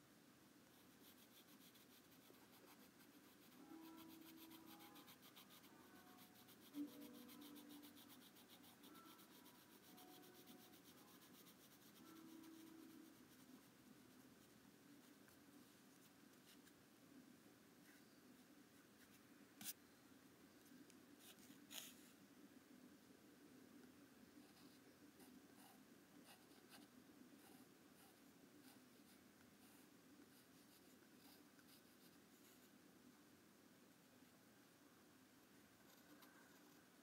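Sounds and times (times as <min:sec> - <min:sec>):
pencil scratching on paper: 0:00.7 - 0:14.2.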